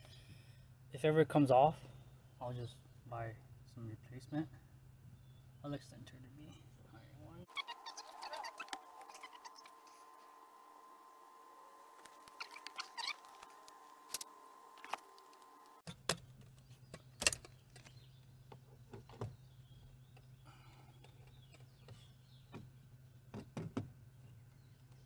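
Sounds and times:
plastic pipe knocking and clicking: 23.3s - 23.9s.

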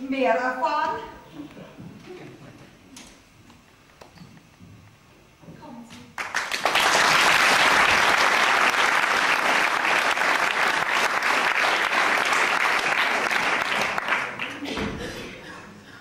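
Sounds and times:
audience applauding: 6.2s - 14.7s.

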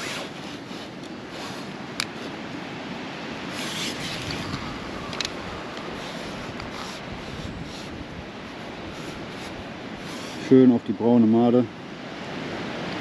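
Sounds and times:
rubbing and rustling: 0.0s - 2.4s, 3.5s - 10.6s
wind on microphone: 0.0s - 10.9s.

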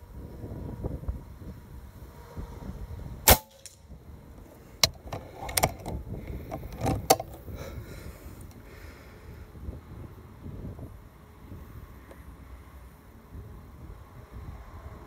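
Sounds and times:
wind rumbling on microphone: 0.0s - 15.0s
air rifle shot: 3.3s - 3.8s
mechanical clicks and knocks: 4.8s - 7.4s.

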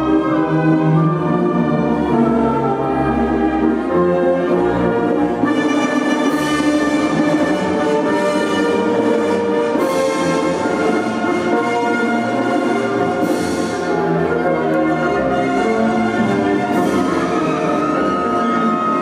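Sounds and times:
orchestral music with brass: 0.0s - 19.0s.

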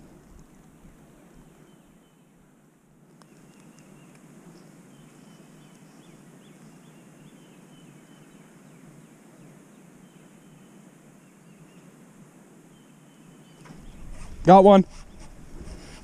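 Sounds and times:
low wind rumble: 13.6s - 16.0s.

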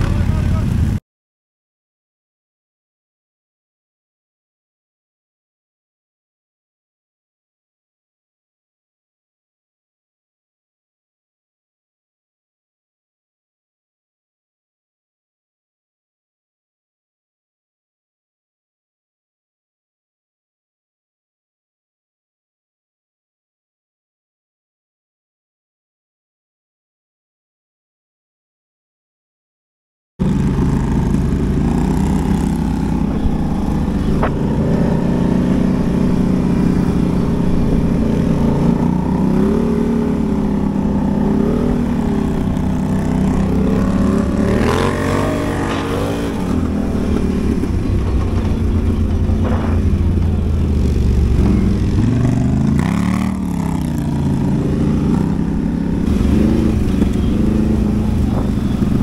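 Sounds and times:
quad bike engines revving: 0.0s - 1.0s, 30.2s - 59.0s.

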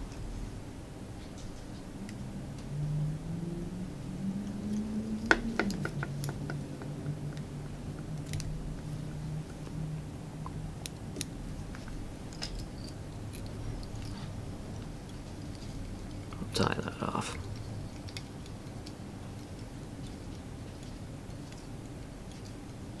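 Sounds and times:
low steady hum: 0.0s - 23.0s
scissors snipping and clicking: 4.5s - 9.8s.

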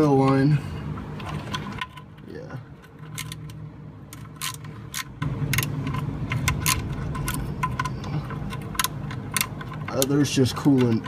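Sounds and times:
low rumble: 5.0s - 9.9s.

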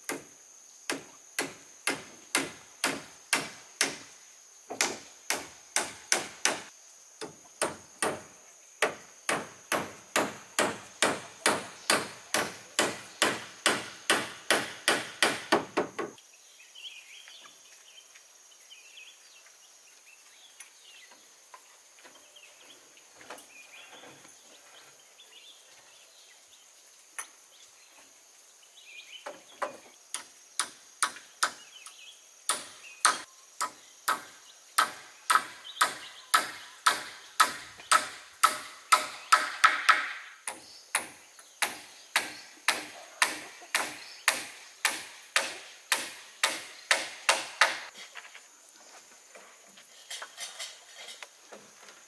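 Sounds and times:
faint scraping and handling: 48.0s - 52.0s.

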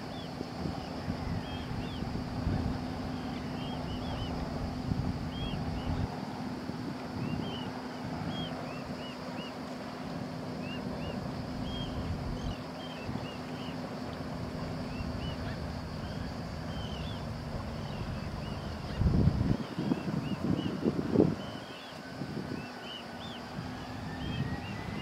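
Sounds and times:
jet engines idling: 0.0s - 25.0s
wind rumble on microphone: 0.0s - 25.0s.

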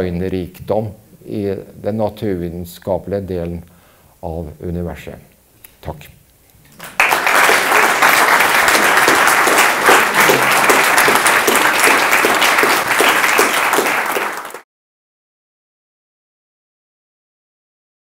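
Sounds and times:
audience applauding: 6.7s - 14.6s.

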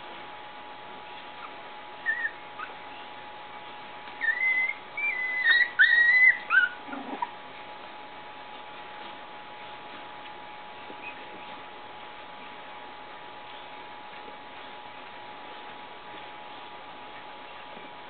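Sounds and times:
puppies whining and squealing: 1.3s - 3.1s, 4.1s - 7.4s, 10.9s - 11.4s.

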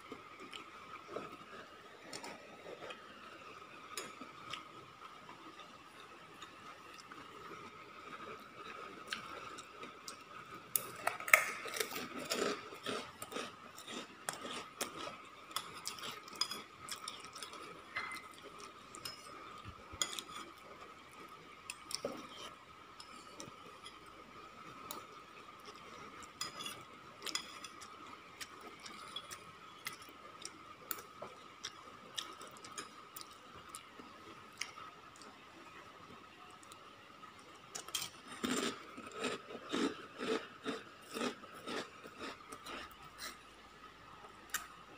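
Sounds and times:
metal spoon scraping ceramic bowl: 26.4s - 27.8s.

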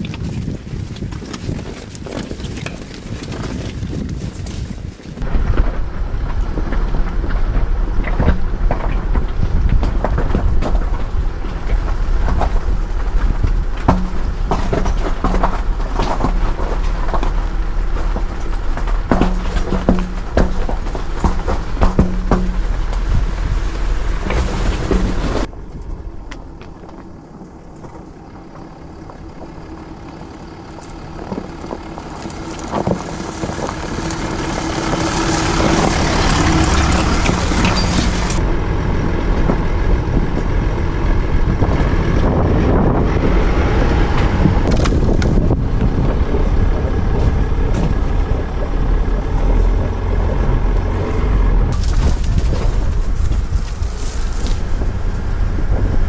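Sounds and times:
tyres crunching through ice: 0.0s - 5.6s, 26.3s - 38.4s, 44.2s - 56.0s.

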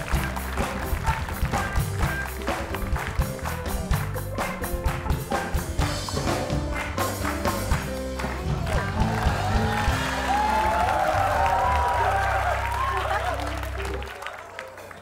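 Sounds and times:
drum beat: 0.0s - 11.7s
bass line: 0.0s - 14.1s
upbeat band music: 0.0s - 15.0s.

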